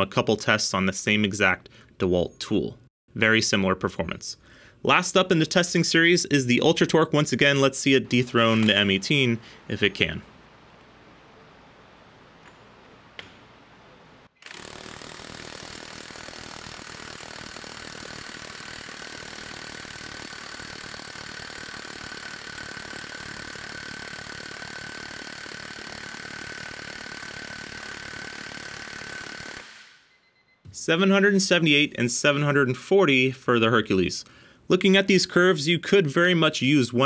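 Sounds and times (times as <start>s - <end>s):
impact wrench hammering: 14.4s - 30.1s.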